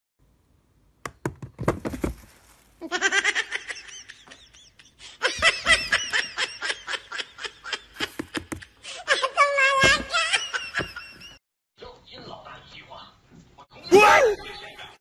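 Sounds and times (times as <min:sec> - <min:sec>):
plastic bin lid knocks: 0:01.0 - 0:02.3.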